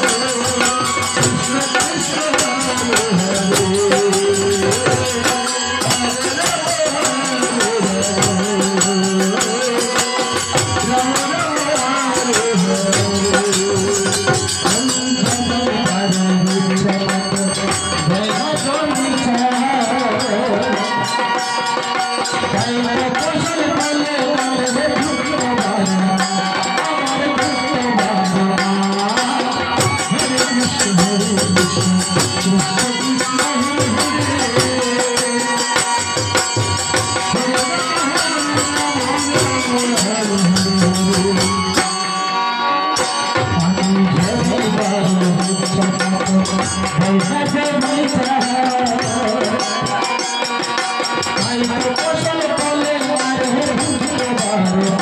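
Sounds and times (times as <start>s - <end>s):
harmonium: 0.0s - 55.0s
voices singing devotional song: 0.0s - 55.0s.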